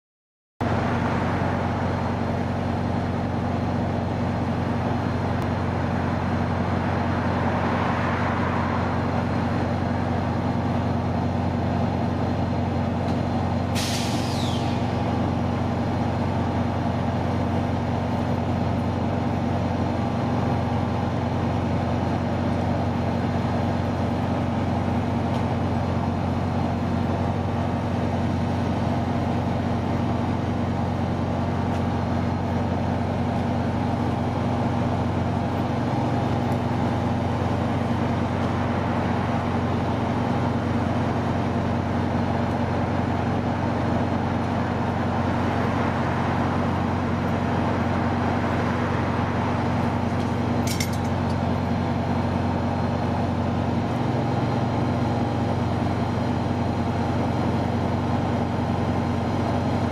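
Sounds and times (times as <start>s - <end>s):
diesel engine idling: 0.6s - 59.9s
air release hiss: 13.7s - 15.0s.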